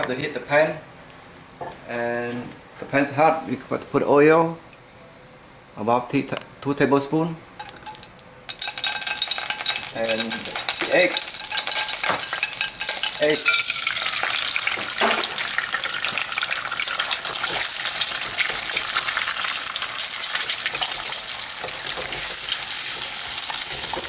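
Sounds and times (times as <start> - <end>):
eggs sizzling in hot oil: 7.6 - 24.0.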